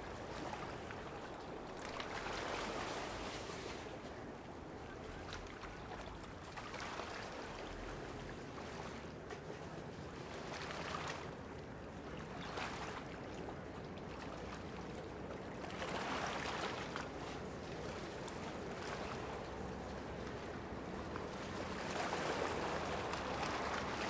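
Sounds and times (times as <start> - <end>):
ship engine hum: 13.1 - 24.0
water washing against riverbank: 15.2 - 24.0.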